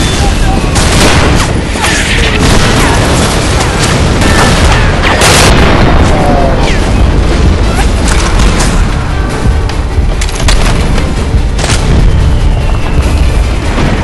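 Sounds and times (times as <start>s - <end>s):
explosions rumbling: 0.0s - 14.0s
gunfire cracks: 0.1s - 9.0s
falling whistles: 11.9s - 13.4s.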